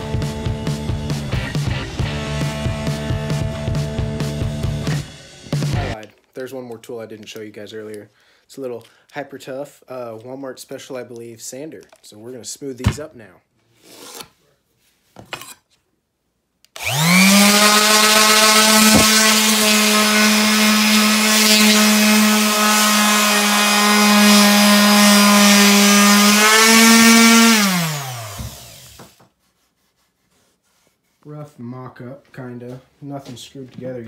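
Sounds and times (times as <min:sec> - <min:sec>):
orbital sander sanding wood: 0:16.8 - 0:31.3.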